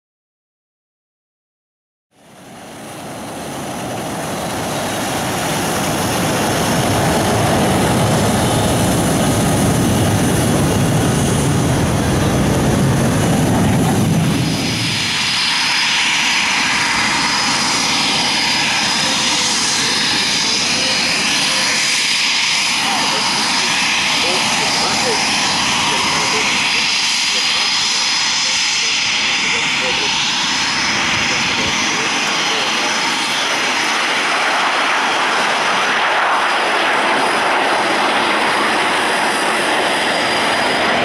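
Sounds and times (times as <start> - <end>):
jet engine whine: 2.1 - 41.0
jet engine rumble: 2.2 - 41.0.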